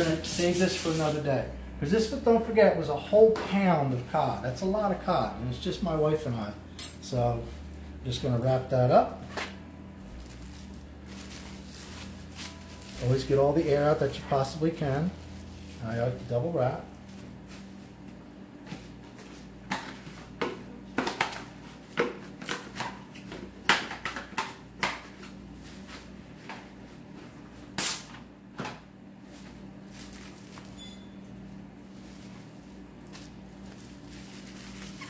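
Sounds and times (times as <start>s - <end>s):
steady low hum: 0.0s - 35.0s
plastic cling wrap crinkling: 10.0s - 18.2s, 29.3s - 30.8s, 31.8s - 35.0s.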